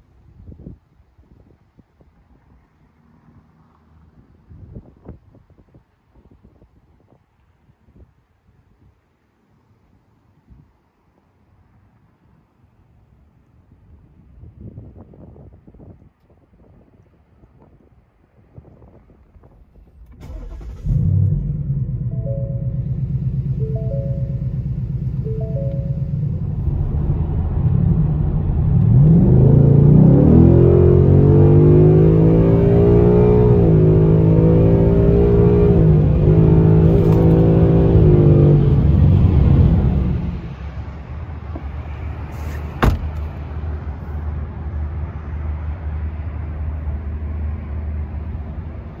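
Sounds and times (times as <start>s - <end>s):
car engine accelerating hard: 20.0s - 40.5s.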